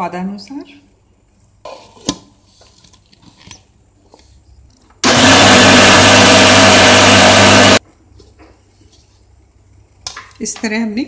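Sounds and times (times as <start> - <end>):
mixer grinder motor running: 5.0 - 7.8.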